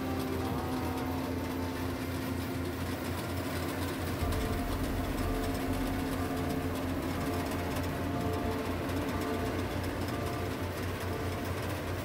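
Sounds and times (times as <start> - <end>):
combine harvester running: 0.0 - 12.0.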